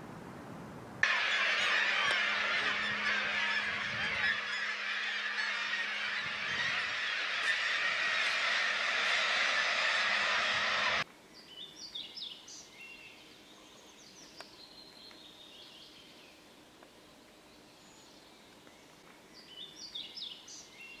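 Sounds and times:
small songbird singing: 0:19.4 - 0:21.0.

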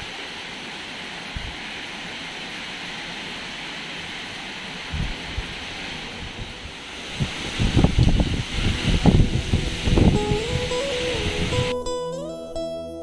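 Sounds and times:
heavy rain on tiles: 0:00.0 - 0:11.7
wind thumps on microphone: 0:01.3 - 0:01.6, 0:04.9 - 0:11.7.

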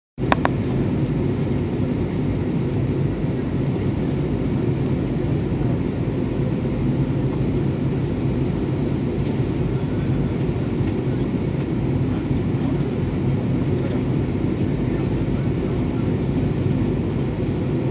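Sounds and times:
airliner cabin engine rumble: 0:00.2 - 0:17.9.

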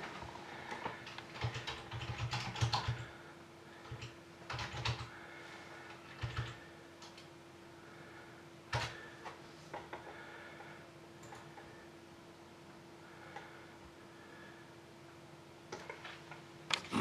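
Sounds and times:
faint steady hum: 0:00.0 - 0:17.0
typing on computer keyboard: 0:00.7 - 0:03.1, 0:03.8 - 0:05.1, 0:06.0 - 0:07.3, 0:08.7 - 0:09.0, 0:11.2 - 0:11.7.

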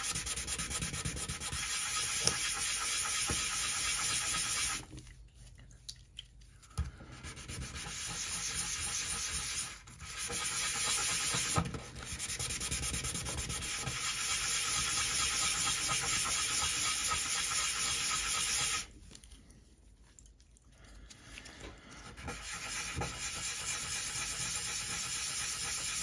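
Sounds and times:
hand sanding plastic: 0:00.0 - 0:04.9, 0:07.1 - 0:18.9, 0:22.0 - 0:26.0.

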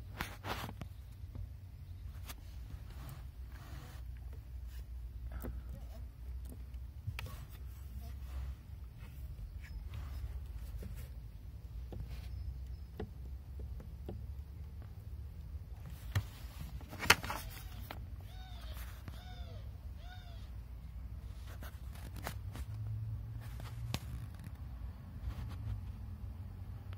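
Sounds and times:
clutch pedal squeaks: 0:09.2 - 0:11.2, 0:11.8 - 0:14.3.

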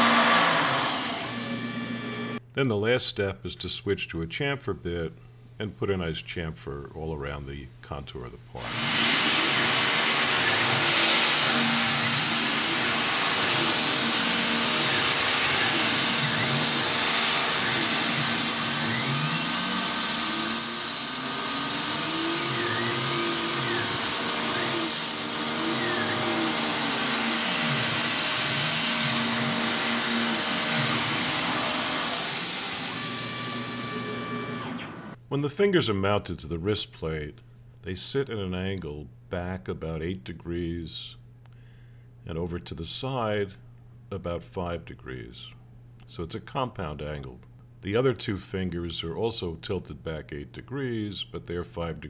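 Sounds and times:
milling machine spindle hiss and hum: 0:00.0 - 0:02.4, 0:08.6 - 0:35.2.

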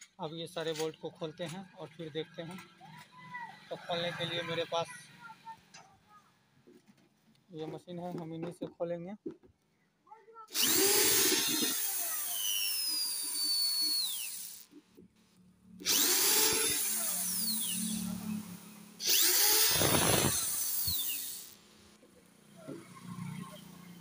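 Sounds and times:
cordless drill driving screws: 0:10.5 - 0:14.8, 0:15.8 - 0:21.6.

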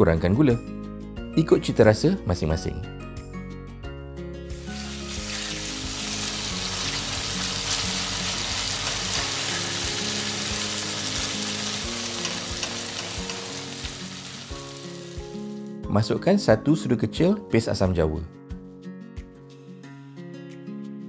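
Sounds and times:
chili paste sizzling in oil: 0:04.5 - 0:15.7.

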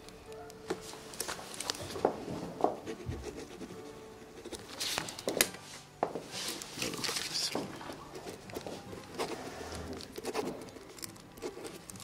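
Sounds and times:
paper rustling: 0:00.8 - 0:02.8, 0:04.5 - 0:12.0
pen scratching on paper: 0:02.8 - 0:04.8, 0:06.8 - 0:10.8, 0:11.4 - 0:12.0.

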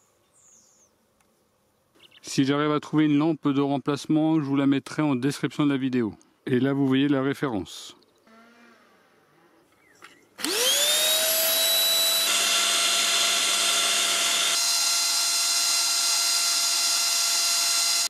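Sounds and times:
handheld vacuum cleaner whining: 0:10.4 - 0:18.0.

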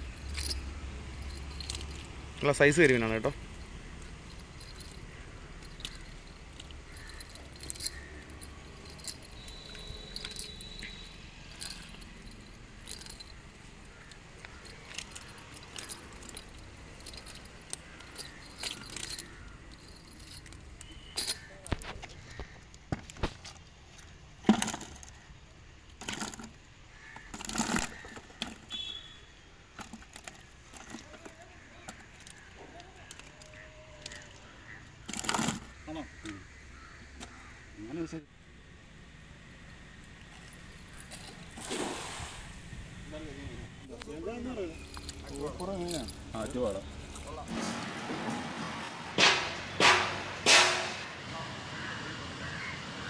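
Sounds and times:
cast net clicking and clinking: 0:00.0 - 0:37.6, 0:40.1 - 0:42.1, 0:43.8 - 0:48.0
fish slapping into a bucket: 0:41.5 - 0:42.5.

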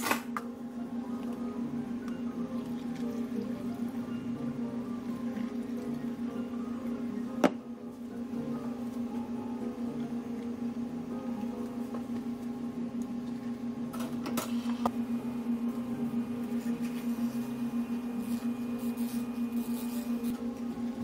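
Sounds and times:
low mechanical hum: 0:00.0 - 0:21.0
drink-making handling sounds: 0:02.0 - 0:08.1.

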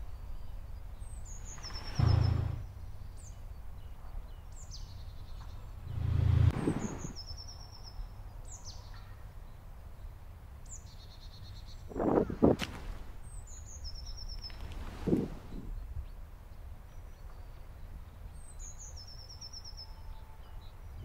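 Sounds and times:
birds chirping: 0:00.0 - 0:09.0, 0:11.4 - 0:16.2
low rumbles: 0:01.5 - 0:02.8, 0:05.7 - 0:07.2, 0:14.6 - 0:15.8.

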